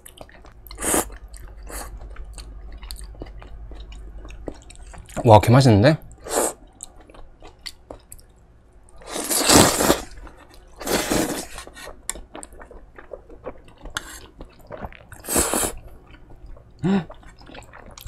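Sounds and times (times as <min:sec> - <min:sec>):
wet mouth clicks and chewing: 0:00.0 - 0:05.2, 0:06.8 - 0:08.4, 0:16.0 - 0:18.0
slurping noodles: 0:09.0 - 0:10.2, 0:10.8 - 0:11.9, 0:15.2 - 0:15.8.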